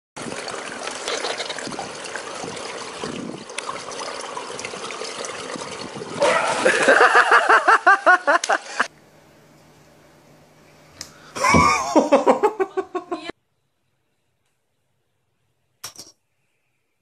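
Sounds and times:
loud water splash: 0.2s - 8.8s
pool water lapping: 0.2s - 8.9s
person laughing hard: 6.2s - 8.9s, 11.4s - 13.3s.

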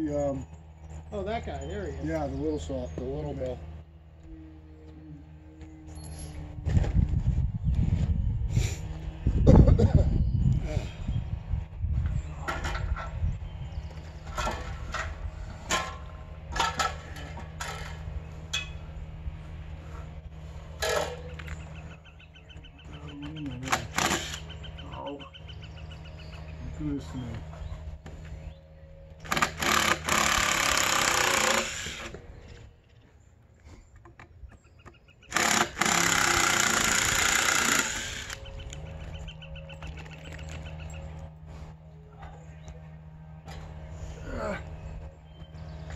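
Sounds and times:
power driver running a screw into log: 23.6s - 24.5s, 29.2s - 32.2s, 35.2s - 38.8s.

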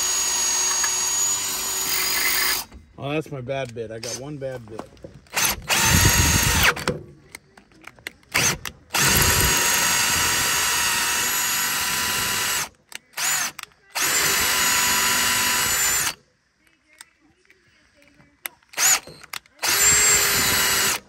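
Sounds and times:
cordless drill boring into bolt: 0.0s - 2.7s, 5.3s - 6.9s, 8.3s - 16.2s, 18.8s - 21.0s.

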